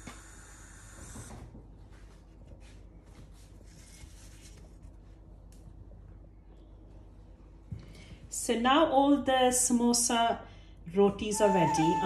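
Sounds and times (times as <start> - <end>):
low steady hum: 0.0 - 12.0
faint rubbing and handling noises: 1.8 - 5.8.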